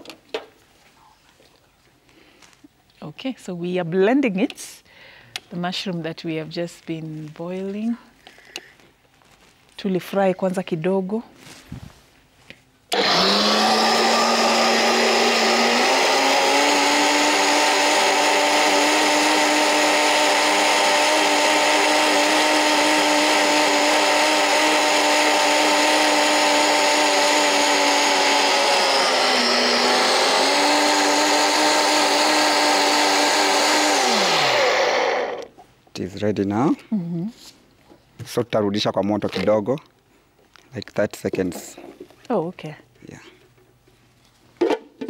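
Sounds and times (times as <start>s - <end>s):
blender running at high speed: 12.9s - 35.5s.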